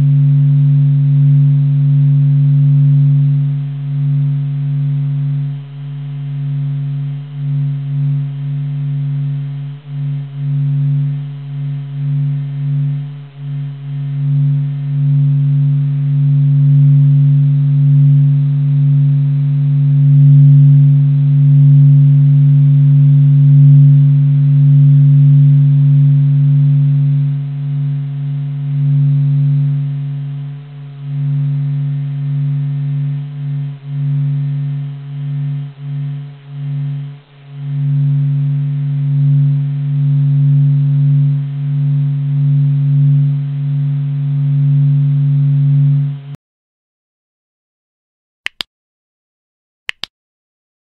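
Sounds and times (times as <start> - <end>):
low steady hum: 0.0 - 46.4.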